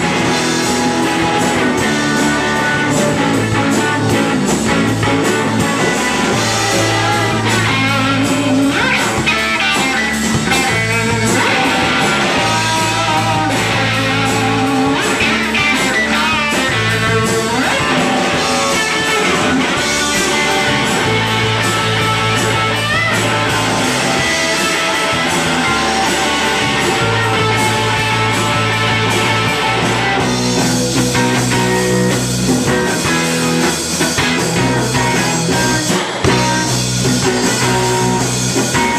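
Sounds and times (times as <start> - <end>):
live rock band playing: 0.0 - 38.9
lead vocals: 0.1 - 21.3.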